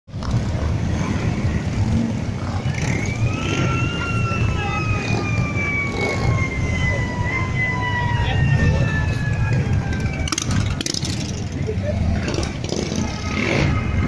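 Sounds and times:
motorcycle engines throbbing: 0.1s - 14.0s
siren-like tone: 2.5s - 10.8s.

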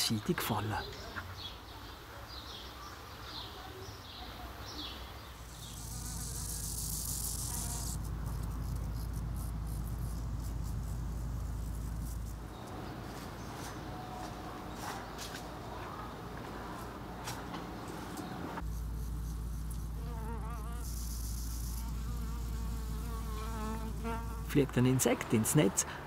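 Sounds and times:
flying insect buzzing: 5.4s - 12.9s, 18.6s - 24.5s.

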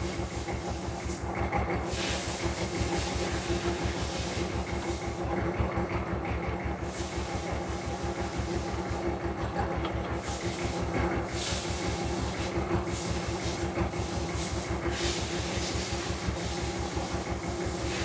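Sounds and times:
machine running with low pulsing: 0.0s - 7.0s.

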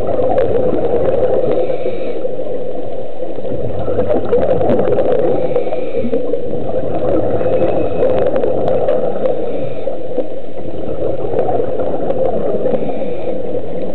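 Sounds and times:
muffled underwater rushing: 0.0s - 13.9s
regulator bubbles: 0.0s - 13.9s
faint clicks: 11.4s - 13.9s.

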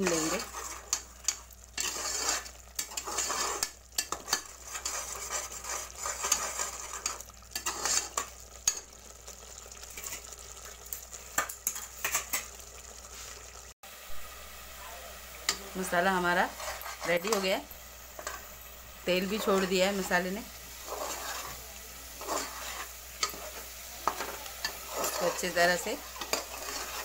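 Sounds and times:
steel spoon scraping pot: 0.0s - 8.9s, 15.5s - 18.5s, 19.1s - 27.0s
paste sizzling in pot: 0.0s - 27.0s.

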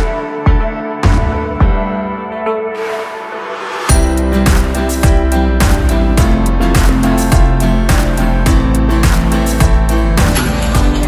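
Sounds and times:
background music with steady beat: 0.0s - 11.0s
deep bass: 3.9s - 11.0s.

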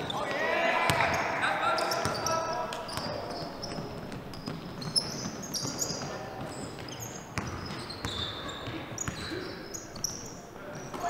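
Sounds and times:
sneakers squeaking on gym floor: 0.0s - 11.0s
basketball bouncing: 0.9s - 1.2s, 2.9s - 9.4s.

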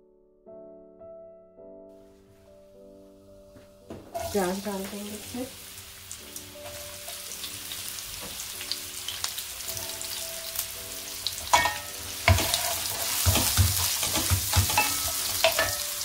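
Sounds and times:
wooden spatula scraping a pan: 4.1s - 4.7s, 11.3s - 16.0s
onions sizzling in hot oil: 4.1s - 16.0s.

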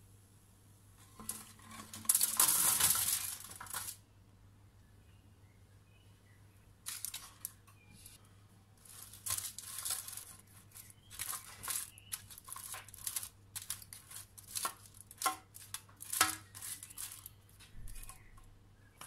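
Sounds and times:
foil crinkling and scraping: 1.0s - 4.0s, 6.9s - 8.2s, 8.8s - 18.3s.

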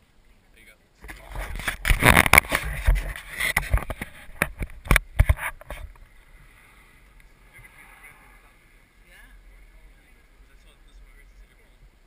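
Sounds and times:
rumbling on microphone: 1.0s - 12.0s
camera handling knocks and bumps: 1.1s - 6.0s.

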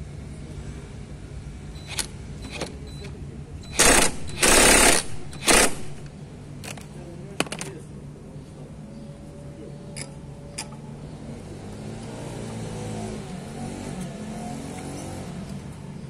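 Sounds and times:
impact wrench hammering: 3.8s - 6.1s.

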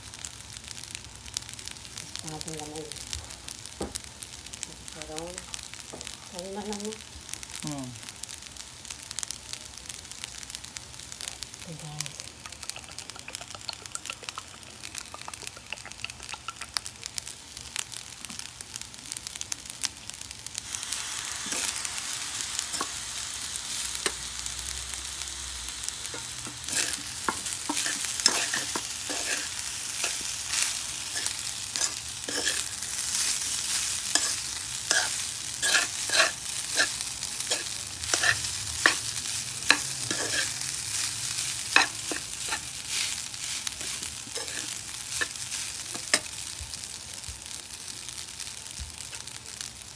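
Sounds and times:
rice sizzling in a wok: 0.0s - 49.9s
metal spoon scraping a wok: 26.1s - 46.3s.

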